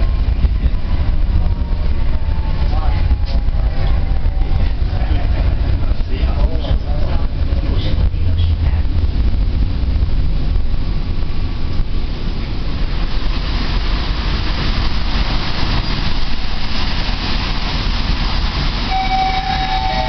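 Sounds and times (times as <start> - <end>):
tram wheels rumbling and rattling: 0.0 - 20.0
high squeal: 18.9 - 20.0.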